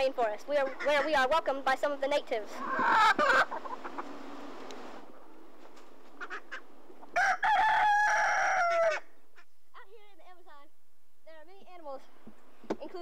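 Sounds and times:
rooster crowing: 7.1s - 9.2s.

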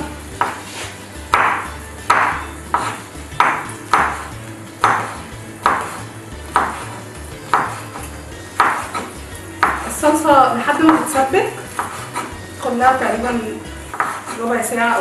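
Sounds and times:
knife slicing on wooden board: 0.4s - 9.8s, 11.8s - 12.4s, 13.9s - 14.4s.

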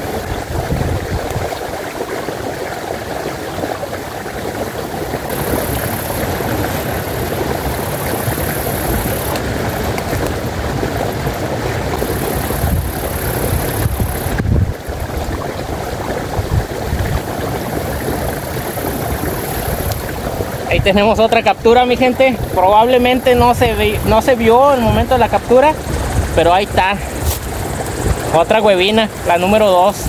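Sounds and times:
low rumble on microphone: 0.0s - 1.8s, 5.2s - 29.3s
river water rushing: 0.0s - 30.0s
high hiss: 5.3s - 9.9s, 12.0s - 14.4s.

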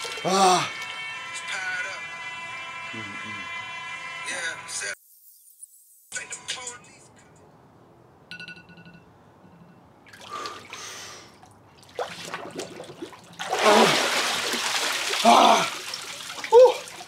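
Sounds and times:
water sloshing and splashing: 0.0s - 1.0s, 10.0s - 17.0s.

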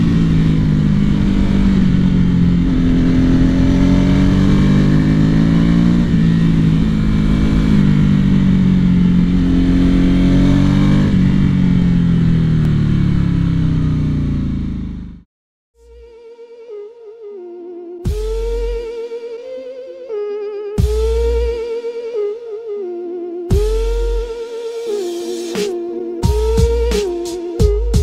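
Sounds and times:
motorcycle engine accelerating: 0.0s - 15.3s.

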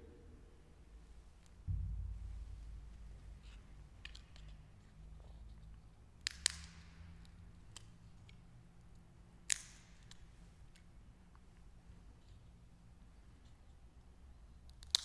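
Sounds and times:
wafer snapping with echo: 1.7s - 4.6s, 6.2s - 7.9s, 9.4s - 10.3s.

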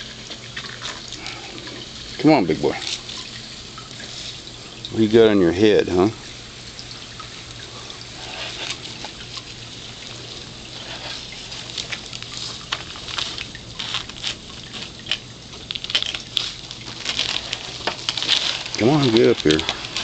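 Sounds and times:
lizard claws crackling on dry leaves: 10.7s - 20.0s.

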